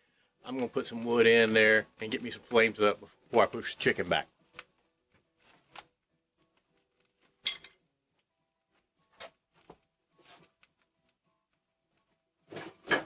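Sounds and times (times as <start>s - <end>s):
firewood knocking and scraping: 12.5s - 13.0s.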